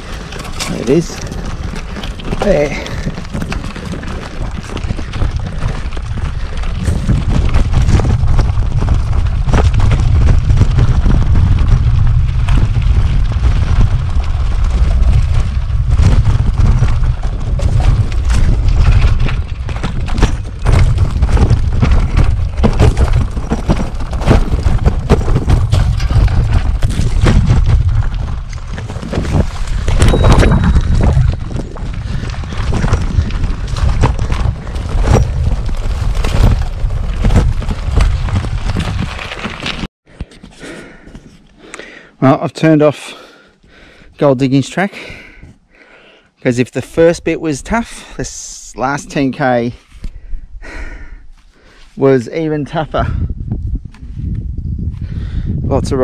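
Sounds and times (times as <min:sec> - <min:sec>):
wind buffeting microphone: 0:00.0 - 0:39.8, 0:47.1 - 0:56.0
bike rattling over rocks: 0:00.0 - 0:41.0.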